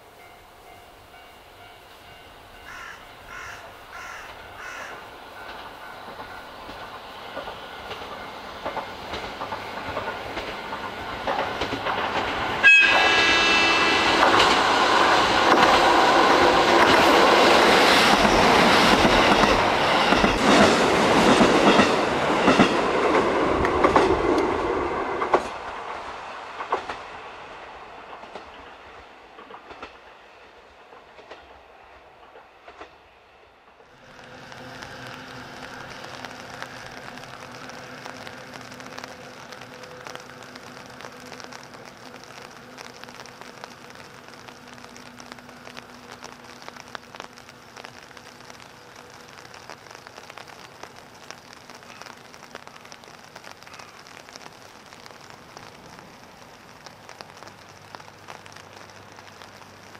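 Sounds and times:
train wheels clattering on rails: 0:01.1 - 0:33.1
diesel train engine: 0:05.1 - 0:41.8
train horn blast: 0:12.6 - 0:14.5.

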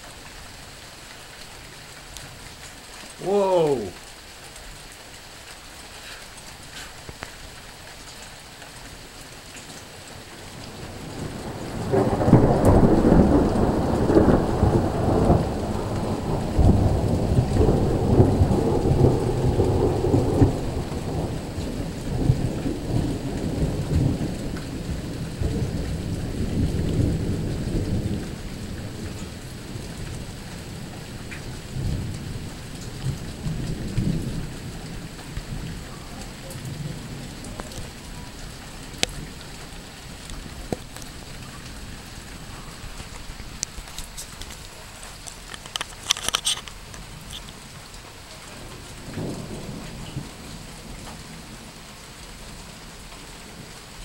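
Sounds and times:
steady rain: 0:00.0 - 0:54.0
thunder rolling: 0:10.7 - 0:29.9, 0:48.6 - 0:51.2.

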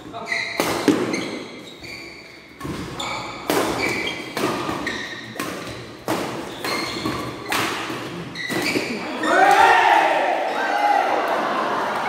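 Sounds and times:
rackets hitting shuttlecock: 0:00.5 - 0:01.5, 0:02.5 - 0:09.6.

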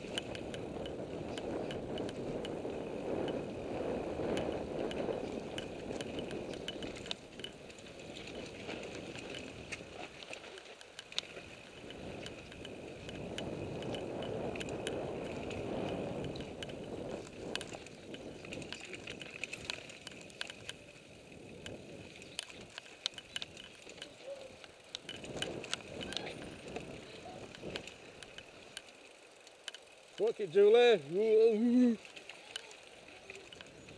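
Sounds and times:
bike frame and chain rattling: 0:00.0 - 0:33.9
bike tyres rumbling on dirt: 0:00.0 - 0:33.9.

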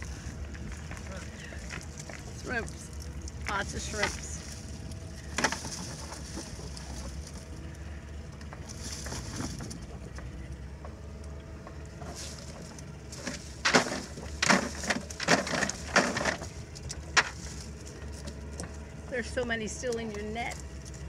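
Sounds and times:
low hum: 0:00.0 - 0:21.0
net and shrimp clattering on bucket: 0:00.7 - 0:07.4, 0:12.0 - 0:20.8.

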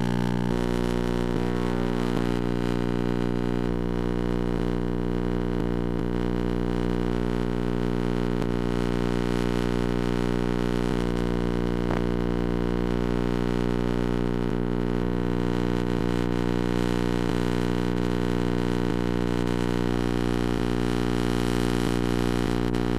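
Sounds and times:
electrical hum: 0:00.0 - 0:13.7
tape hiss: 0:00.0 - 0:22.9.

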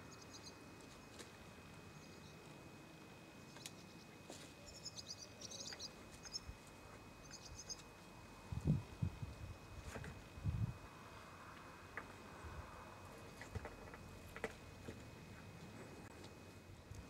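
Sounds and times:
small birds chirping: 0:00.0 - 0:01.1, 0:03.4 - 0:06.6, 0:07.2 - 0:07.9.

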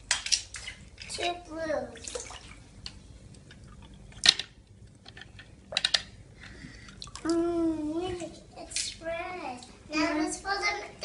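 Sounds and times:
water splashing: 0:00.0 - 0:02.8.

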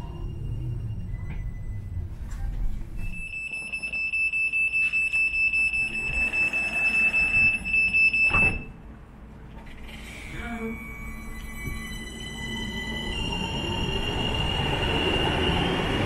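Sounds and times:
high pulsing warning beep: 0:00.0 - 0:02.2, 0:03.0 - 0:08.8, 0:10.6 - 0:16.0
doors shutting thump: 0:08.3 - 0:08.7.

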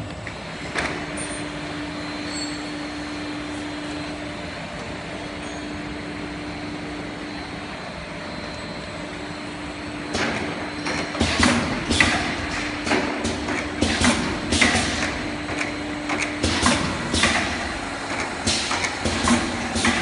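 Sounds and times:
machine hum: 0:00.0 - 0:20.0.

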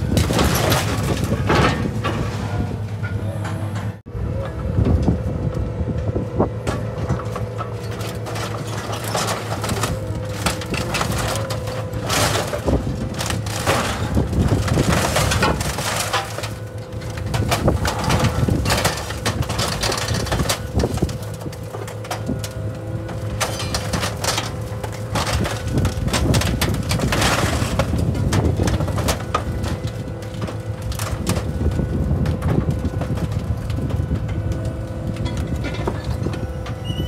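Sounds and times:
heavy machine engine running: 0:00.0 - 0:37.0
scrap metal crunching and banging: 0:00.0 - 0:37.0.

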